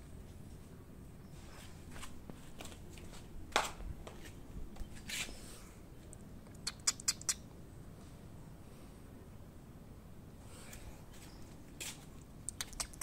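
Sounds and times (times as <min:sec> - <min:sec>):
flip-flop footsteps on concrete: 0:01.6 - 0:05.4, 0:10.7 - 0:12.2
sharp clicks: 0:12.4 - 0:13.0.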